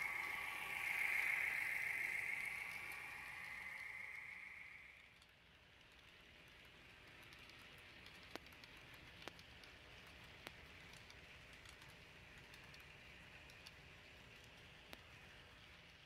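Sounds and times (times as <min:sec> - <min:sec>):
metal wheels hissing on track: 0:00.0 - 0:05.0.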